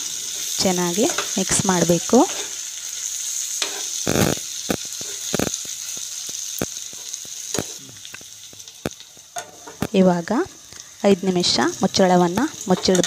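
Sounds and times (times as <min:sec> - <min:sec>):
chicken sizzling in a frying pan: 0:00.0 - 0:13.0
wooden spatula scraping a pan: 0:03.6 - 0:04.0.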